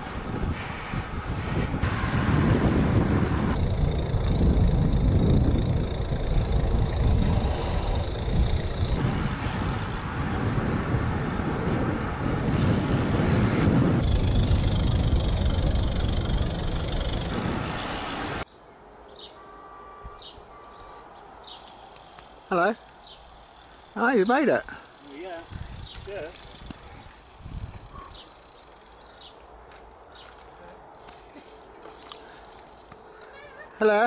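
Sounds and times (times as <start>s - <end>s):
wind buffeting: 0.0s - 18.4s, 24.7s - 30.2s
road noise: 0.0s - 34.0s.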